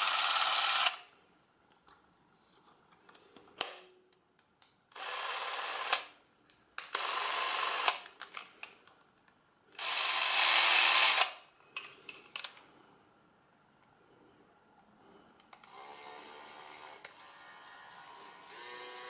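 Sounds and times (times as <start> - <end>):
camera electric motor running: 0.0 - 1.0, 9.8 - 11.3, 15.7 - 19.0.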